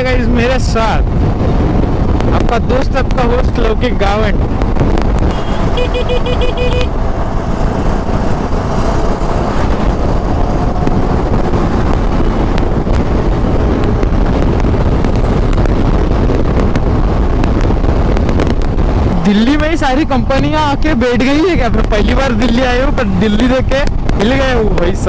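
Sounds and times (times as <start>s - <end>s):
tyre and traffic noise: 0.0s - 25.0s
wind on microphone: 0.0s - 25.0s
scooter engine at speed: 5.3s - 15.7s.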